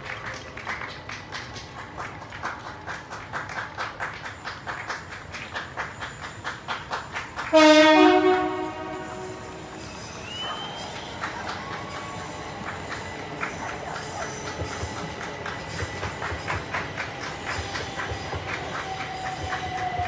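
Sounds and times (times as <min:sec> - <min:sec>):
people clapping: 0:00.0 - 0:09.4, 0:10.2 - 0:20.0
train two-tone horn: 0:07.4 - 0:10.8
short rising whistle: 0:09.7 - 0:11.2.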